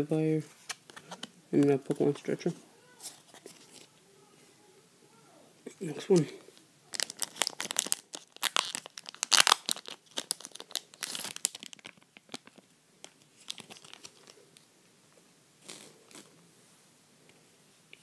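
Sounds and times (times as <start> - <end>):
wrapper tearing and crinkling: 6.9 - 14.4.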